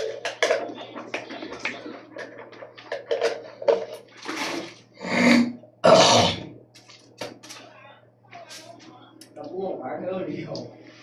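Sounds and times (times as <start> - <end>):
man spluttering and coughing: 5.0 - 6.5.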